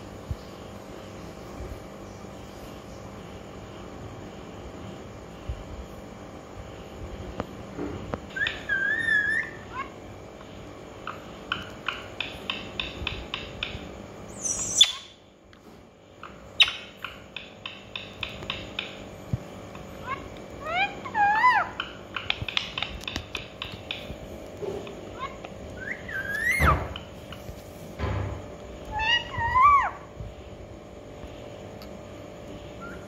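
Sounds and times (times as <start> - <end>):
parakeet calling: 8.3 - 10.1, 11.0 - 15.3, 16.2 - 19.0, 19.8 - 24.2, 25.0 - 27.4, 28.8 - 30.1, 32.7 - 33.0
parakeet shrill screech: 14.4 - 15.2, 25.8 - 26.8.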